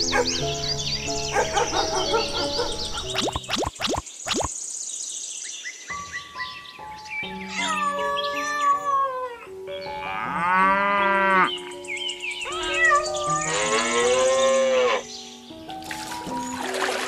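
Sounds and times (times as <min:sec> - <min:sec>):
soft background music: 0:00.0 - 0:04.5, 0:05.8 - 0:17.0
cow mooing: 0:10.0 - 0:11.5, 0:13.3 - 0:15.1.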